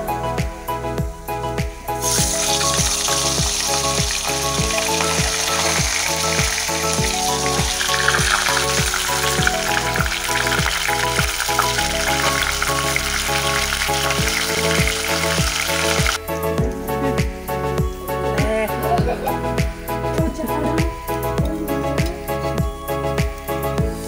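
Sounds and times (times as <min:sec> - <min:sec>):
background music with beat: 0:00.0 - 0:24.0
fish sizzling in hot oil: 0:02.0 - 0:16.2.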